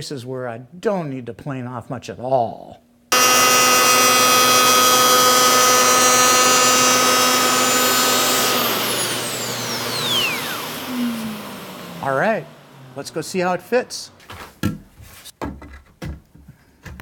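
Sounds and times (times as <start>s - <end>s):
electric planer whining: 3.1s - 13.6s
planer spinning down: 3.1s - 13.7s.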